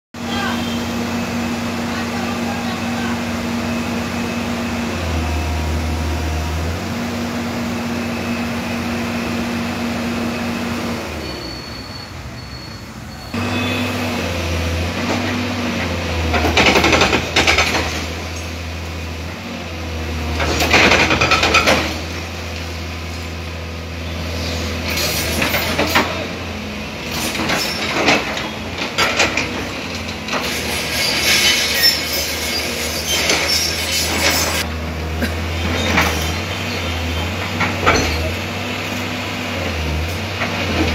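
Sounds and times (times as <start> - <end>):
excavator diesel engine running: 0.2 - 40.9.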